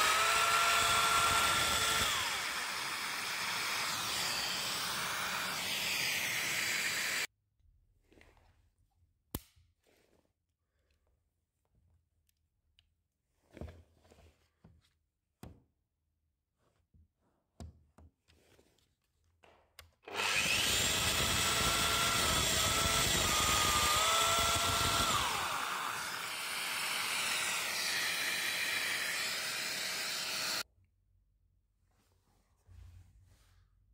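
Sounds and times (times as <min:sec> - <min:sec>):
joiner motor whining: 0:00.0 - 0:07.3, 0:20.1 - 0:30.6.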